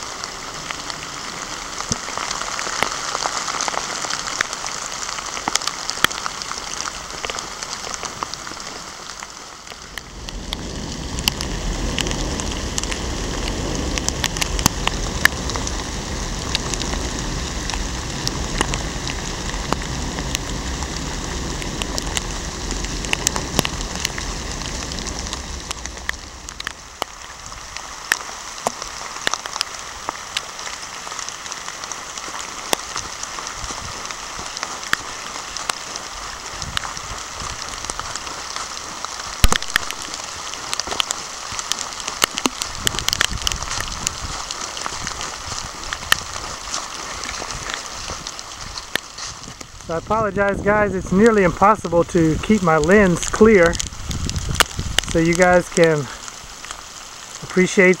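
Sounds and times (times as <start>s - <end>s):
raindrops ticking near microphone: 0.0s - 58.0s
steady rain: 0.0s - 58.0s
low rumble: 9.6s - 30.1s, 42.4s - 57.5s.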